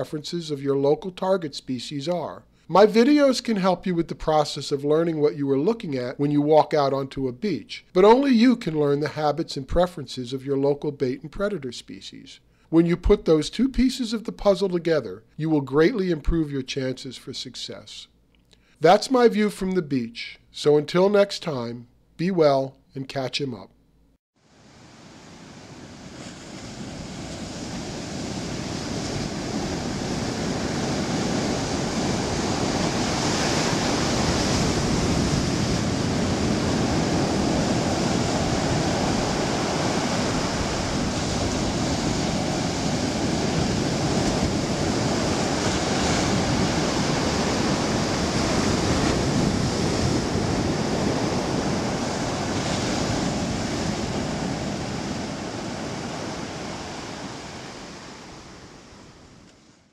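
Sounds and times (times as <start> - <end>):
ocean surf breaking on beach: 24.4 - 59.9.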